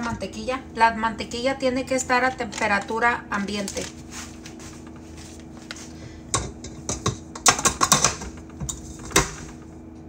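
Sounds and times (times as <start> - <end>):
faint steady hum: 0.0 - 10.0
metal bowl clicks and knocks: 6.3 - 9.6.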